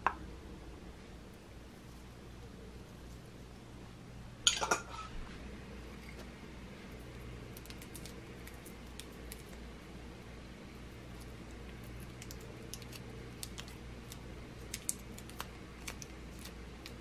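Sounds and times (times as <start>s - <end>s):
metal utensil clinking on dishes: 4.5s - 5.1s.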